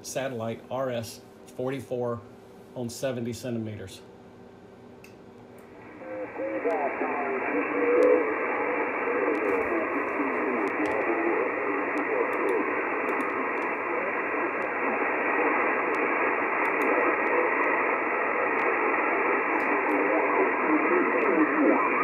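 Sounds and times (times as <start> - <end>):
radio receiver hiss: 5.6 - 22.0
faint wavering weak signals: 5.7 - 22.0.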